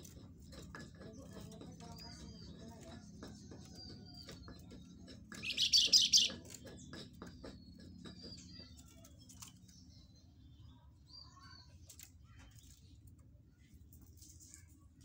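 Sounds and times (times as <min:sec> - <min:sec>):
songbird chattering call: 0:05.4 - 0:06.4.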